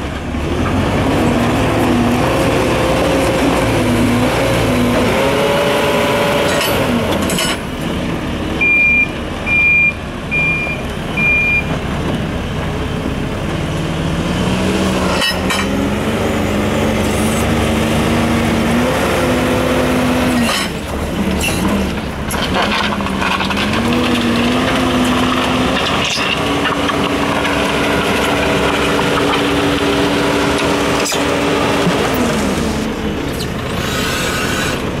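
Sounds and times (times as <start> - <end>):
diesel engine under load: 0.0 - 35.0
reversing alarm beeping: 8.6 - 11.7.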